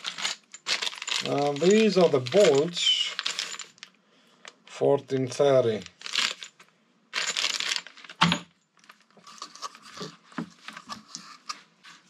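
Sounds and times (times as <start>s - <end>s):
plastic bag crinkling: 0.0s - 3.9s, 5.7s - 6.5s, 7.1s - 8.2s.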